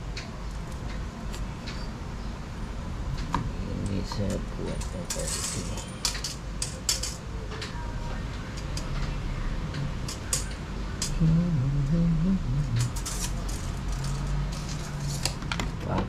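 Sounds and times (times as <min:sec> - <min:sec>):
steady low hum: 0:00.0 - 0:15.2
man humming: 0:11.0 - 0:13.3.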